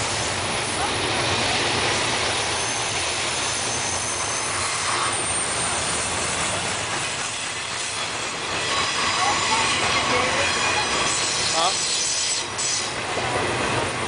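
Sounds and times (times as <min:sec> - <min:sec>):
high wheel squeals: 0:00.0 - 0:13.1
train wheels rumbling on rail: 0:00.0 - 0:14.0.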